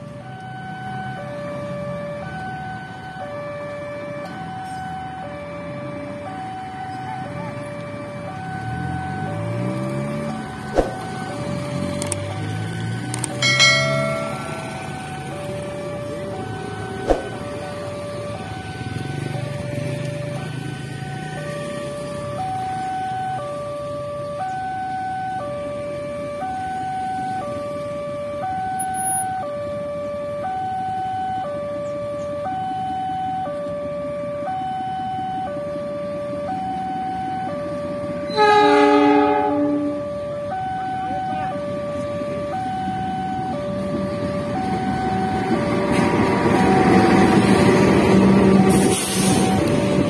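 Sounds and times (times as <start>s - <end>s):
diesel locomotive engine hum: 0.0s - 50.0s
road traffic: 0.0s - 50.0s
motorcycles passing: 7.0s - 23.2s, 42.2s - 50.0s
train wheel noise: 13.3s - 17.9s
level crossing two-tone alarm: 13.3s - 20.0s, 36.4s - 47.9s.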